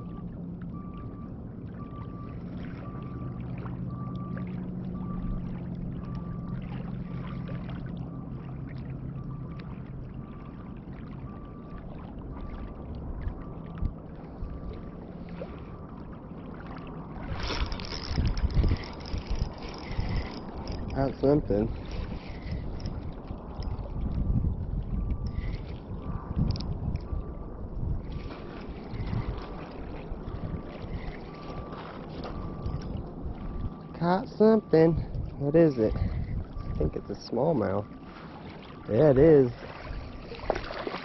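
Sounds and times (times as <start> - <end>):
motor droning: 0.0 - 41.0
short high beeps: 31.0 - 38.0.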